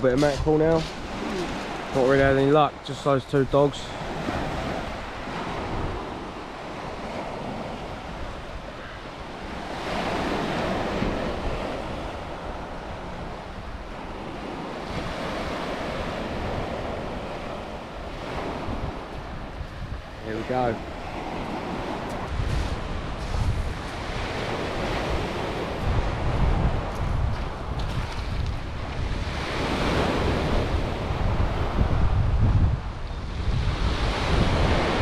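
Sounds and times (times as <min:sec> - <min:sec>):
wind buffeting microphone: 0:00.0 - 0:35.0
waves breaking on shingle: 0:00.1 - 0:02.3.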